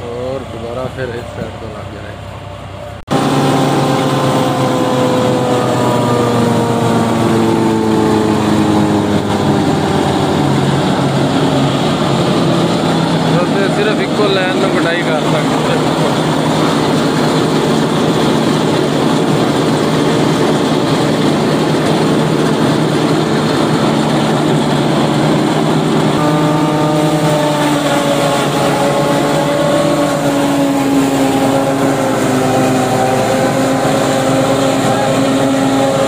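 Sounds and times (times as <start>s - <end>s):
high mechanical whine: 0.0s - 36.0s
tractor engine running: 0.0s - 36.0s
forage harvester chopping corn: 11.2s - 36.0s.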